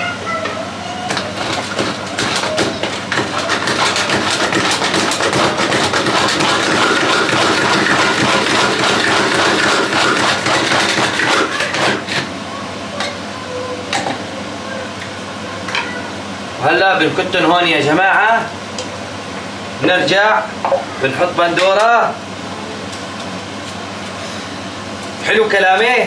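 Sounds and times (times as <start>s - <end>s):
electric food chopper running: 1.1s - 12.4s.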